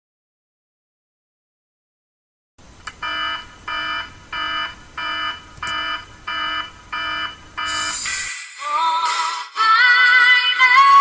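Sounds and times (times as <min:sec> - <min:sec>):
electronic alarm beeping: 0:03.0 - 0:08.1.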